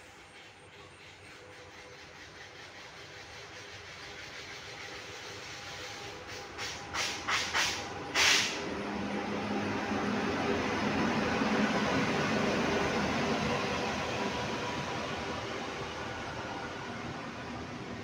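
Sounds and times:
train running noise: 0.0s - 18.0s
short hissing bursts: 5.6s - 8.6s.

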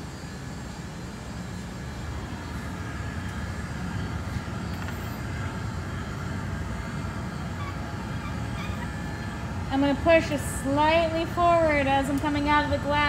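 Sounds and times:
blowers and exhaust fans: 0.0s - 13.0s
glass furnace roaring: 0.0s - 13.0s.

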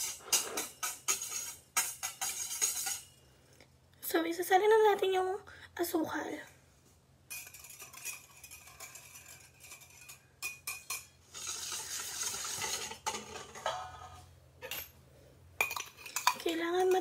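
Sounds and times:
whisk and glass clinking on bowl: 0.0s - 3.2s, 7.3s - 14.0s, 15.6s - 17.0s
sugar pouring into metal bowl: 11.3s - 12.9s.

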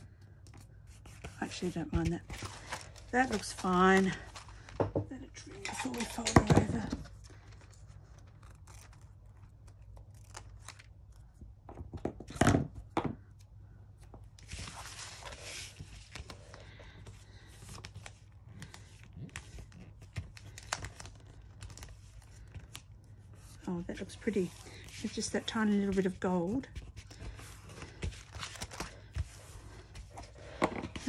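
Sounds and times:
paper sliding and rustling: 14.4s - 16.3s.

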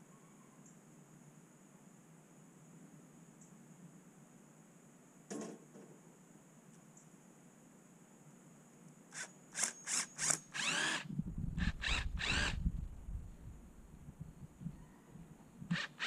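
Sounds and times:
power tool bursts tightening bolts: 9.1s - 12.6s, 15.7s - 16.0s.

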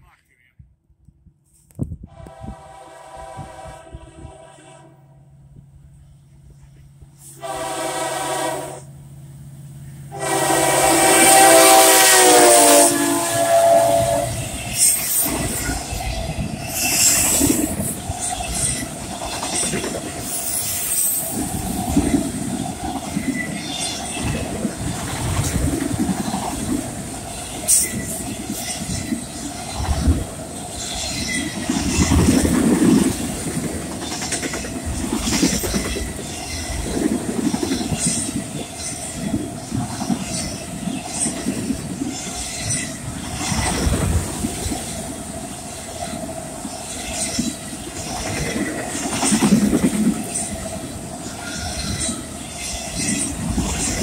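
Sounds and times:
rumbling clatter of rail cars: 1.2s - 54.0s
train horn: 2.0s - 5.4s, 7.2s - 9.0s, 10.1s - 14.9s
wheels clicking over rail joints: 14.6s - 45.0s, 45.8s - 54.0s.

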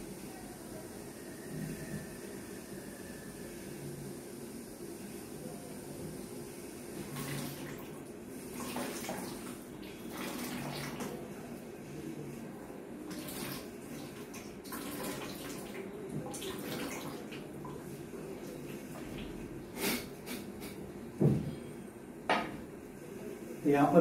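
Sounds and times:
water splashing into a bucket: 7.0s - 11.2s, 13.1s - 17.8s.

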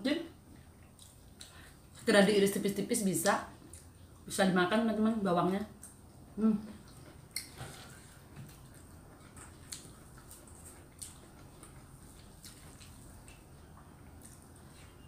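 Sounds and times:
chewing smacks: 0.8s - 1.9s, 6.8s - 15.0s.

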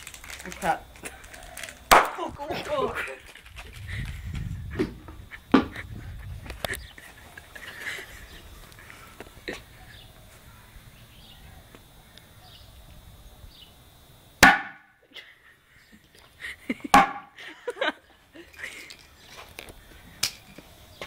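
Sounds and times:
sharp pops under plastic bucket: 1.9s - 2.2s, 14.4s - 14.9s.

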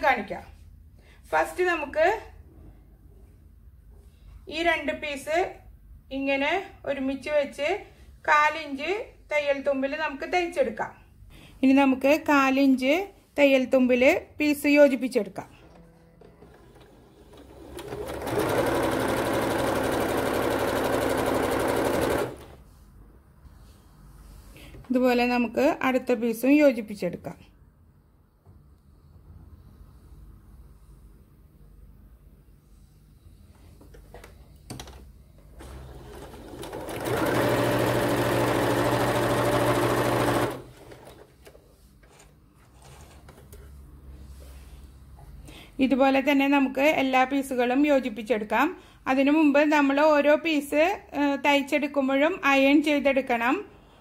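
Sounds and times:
electric sewing machine stitching: 15.7s - 22.6s, 35.6s - 41.2s.

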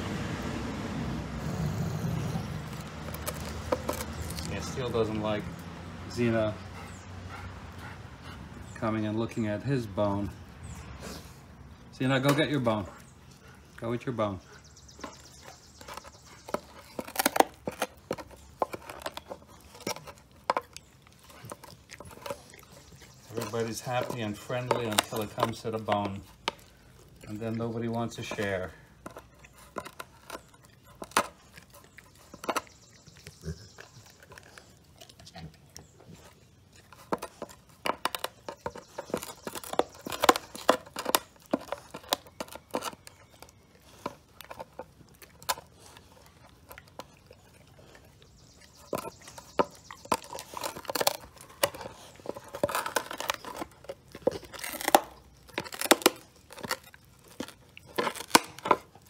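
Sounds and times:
dog gnawing bone: 0.4s - 59.0s.

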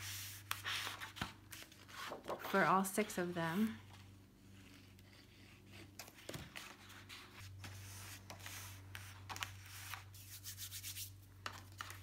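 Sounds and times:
paper rustling: 0.0s - 2.8s.

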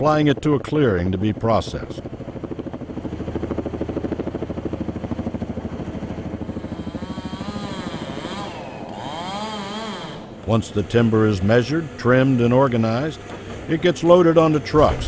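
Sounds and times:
helicopter rotor chopping: 0.0s - 15.0s
whine bending in pitch: 6.5s - 12.9s.

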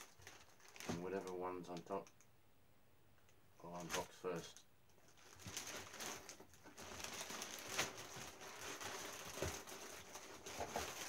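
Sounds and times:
plastic packaging crinkling: 0.0s - 1.9s, 5.0s - 11.0s.

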